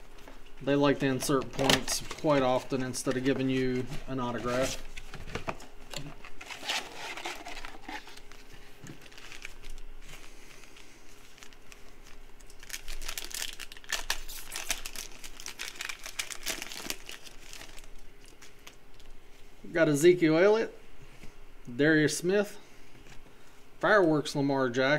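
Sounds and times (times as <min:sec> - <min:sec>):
plastic wrappers crinkling and tearing: 0:06.2 - 0:19.1.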